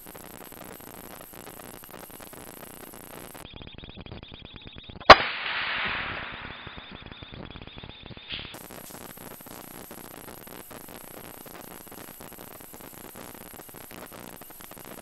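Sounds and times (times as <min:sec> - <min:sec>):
rifle shot: 0:05.0 - 0:07.4
rustling hiss: 0:08.3 - 0:10.1.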